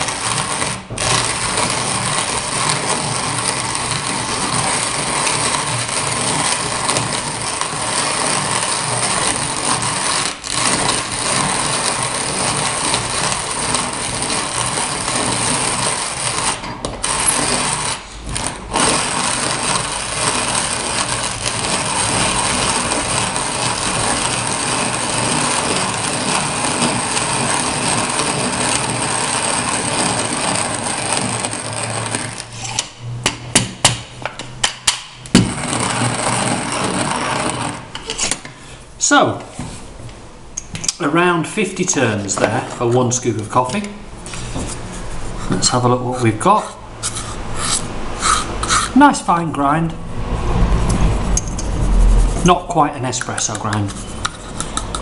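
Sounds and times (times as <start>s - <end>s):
hand coffee grinder grinding beans: 0.0s - 33.0s, 35.3s - 38.5s, 46.6s - 49.2s, 51.4s - 55.0s.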